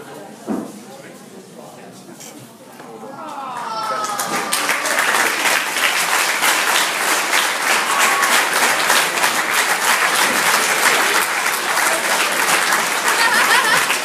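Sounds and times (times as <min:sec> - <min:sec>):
crowd clapping: 0:03.4 - 0:14.0.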